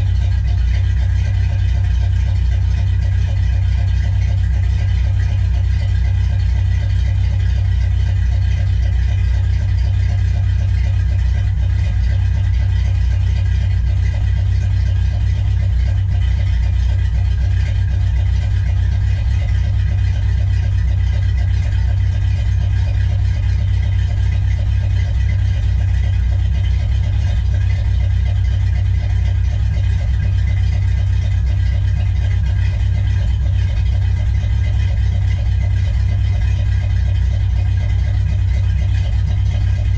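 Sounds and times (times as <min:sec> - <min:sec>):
car engine idling: 0:00.0 - 0:39.9.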